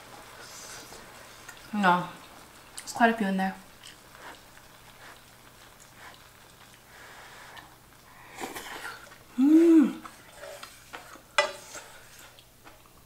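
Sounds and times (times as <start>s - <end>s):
person humming: 9.3s - 10.1s.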